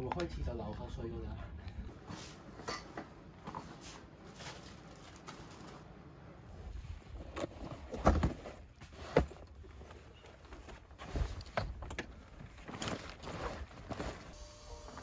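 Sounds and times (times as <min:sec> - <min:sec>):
handling noise: 0:02.0 - 0:15.0.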